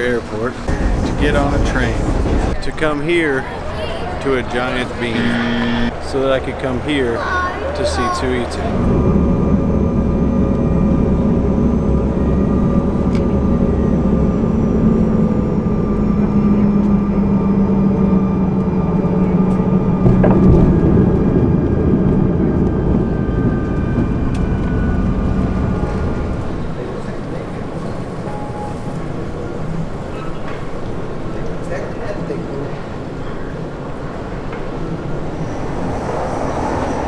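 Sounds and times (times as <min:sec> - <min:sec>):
airliner engine and air noise: 0:00.0 - 0:37.0
deep rumble: 0:00.4 - 0:02.6, 0:08.6 - 0:27.9
low hum falling in pitch: 0:04.4 - 0:27.0.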